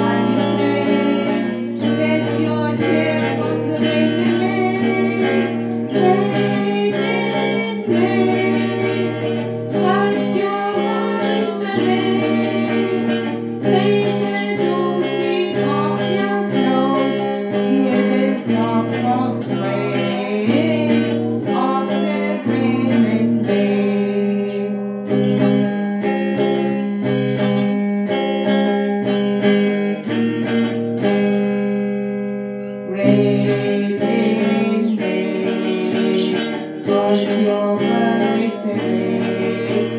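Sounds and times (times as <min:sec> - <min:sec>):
woman singing: 0:00.0 - 0:27.9, 0:32.8 - 0:39.9
electric guitar chords: 0:00.0 - 0:39.9.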